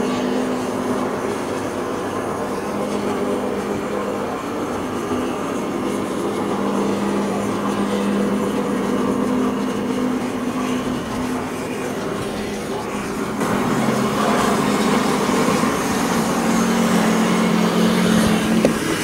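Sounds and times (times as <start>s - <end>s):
two-tone mechanical hum: 0.0s - 19.0s.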